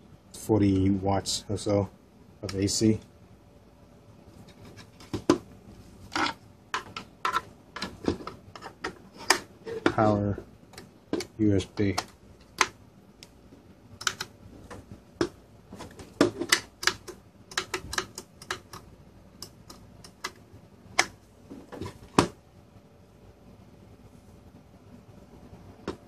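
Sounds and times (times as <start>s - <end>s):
plastic clicks and knocks: 14.0s - 18.8s.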